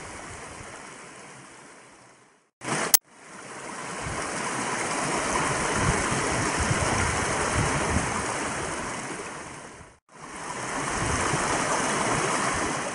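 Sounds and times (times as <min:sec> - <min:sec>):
water rushing: 0:02.6 - 0:12.9
wind rumbling on microphone: 0:04.0 - 0:04.4, 0:05.0 - 0:12.9.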